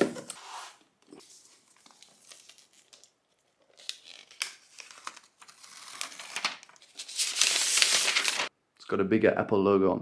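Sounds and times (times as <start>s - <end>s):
paper wrap peeling and crackling: 1.8s - 8.5s.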